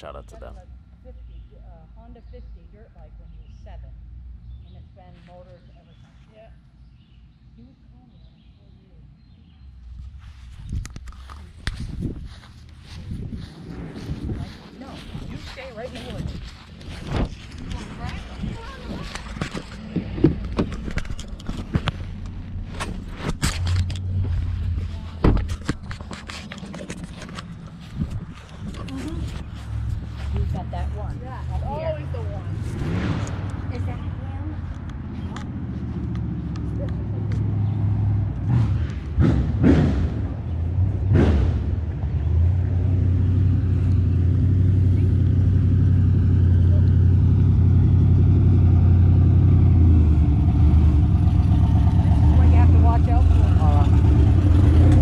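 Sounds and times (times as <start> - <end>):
race car engine approaching: 12.3 - 55.0.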